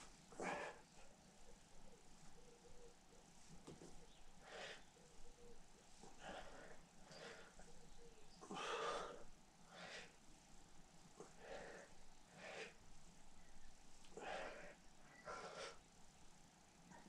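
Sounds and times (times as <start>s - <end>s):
man breathing hard: 0.3s - 1.1s, 4.4s - 4.9s, 6.0s - 7.8s, 8.4s - 10.2s, 11.2s - 12.9s, 14.0s - 15.8s.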